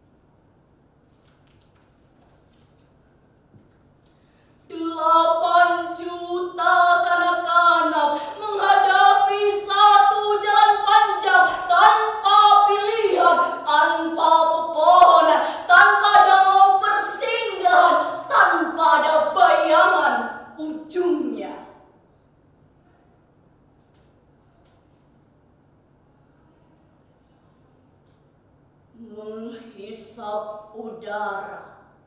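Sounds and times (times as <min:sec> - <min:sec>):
woman singing unaccompanied: 0:04.7 - 0:21.6.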